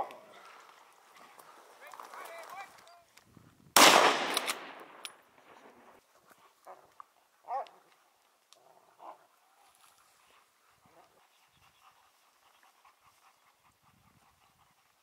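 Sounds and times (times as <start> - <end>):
rifle shot echoing: 3.8 - 5.9.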